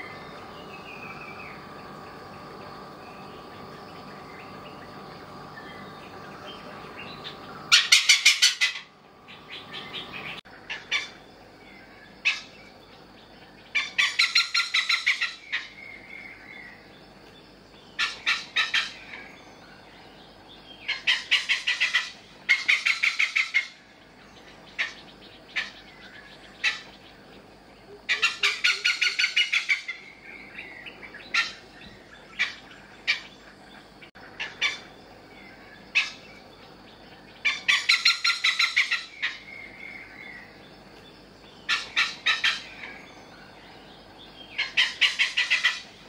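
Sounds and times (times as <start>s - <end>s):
hornbill harsh cackling calls: 7.2s - 11.2s, 13.8s - 15.7s, 18.0s - 19.0s, 20.9s - 23.8s, 28.1s - 30.1s, 34.2s - 34.9s, 36.0s - 36.2s, 37.4s - 39.5s, 41.7s - 43.0s, 44.6s - 46.0s.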